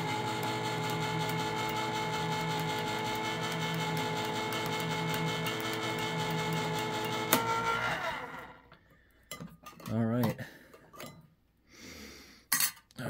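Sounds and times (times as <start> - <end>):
electric can opener humming: 0.0 - 8.8.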